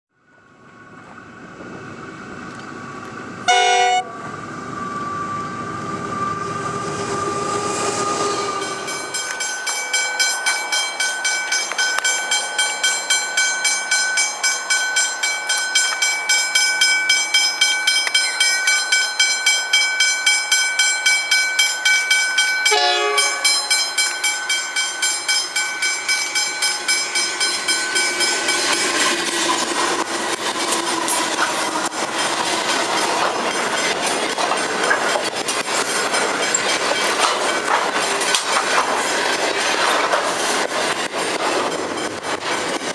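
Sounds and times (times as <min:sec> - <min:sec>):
train horn blast: 0:03.5 - 0:04.2, 0:22.7 - 0:23.6
level-crossing bell ringing: 0:08.6 - 0:28.9.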